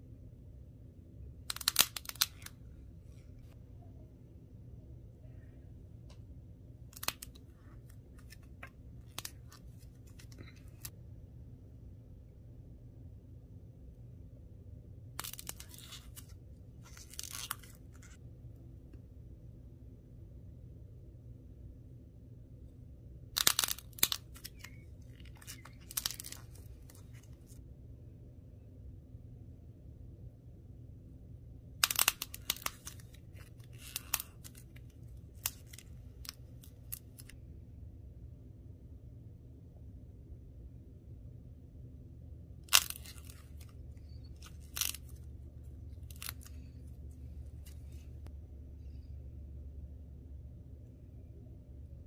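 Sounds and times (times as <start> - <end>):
clay shell cracking and crunching: 1.4 - 2.6, 6.9 - 10.9, 15.2 - 18.2, 23.3 - 27.6, 31.8 - 37.4, 42.6 - 48.2
dried coating cracking: 42.7 - 45.3.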